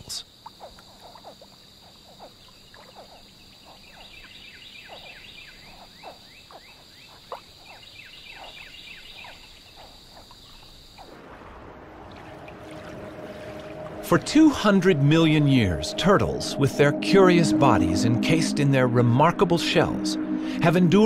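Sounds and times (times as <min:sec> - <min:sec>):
frogs chirping: 0:00.0 - 0:21.0
high-pitched insect drone: 0:13.8 - 0:21.0.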